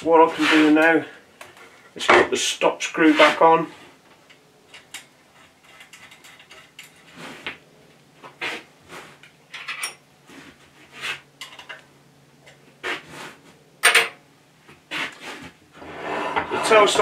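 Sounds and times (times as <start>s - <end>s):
metal tools clinking and scraping: 4.7s - 7.2s, 9.5s - 10.0s.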